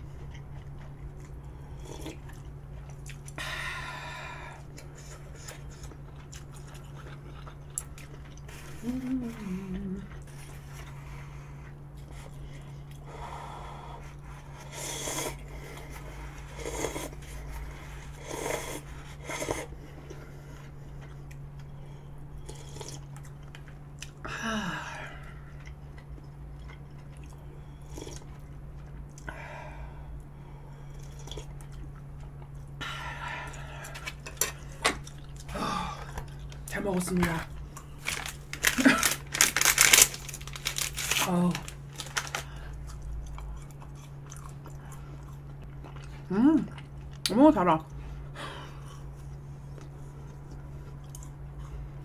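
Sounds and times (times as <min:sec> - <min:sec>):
slurping noodles and broth: 0:14.6 - 0:19.7.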